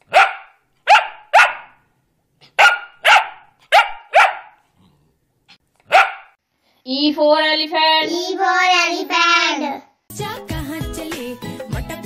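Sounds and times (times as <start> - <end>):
dog barking: 0.0 - 1.8, 2.5 - 4.7, 5.8 - 6.4.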